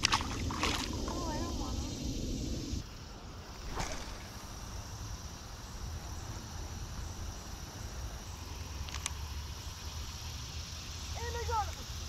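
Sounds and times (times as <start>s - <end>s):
low rumble: 0.0s - 2.8s
high-pitched insect drone: 0.1s - 12.0s.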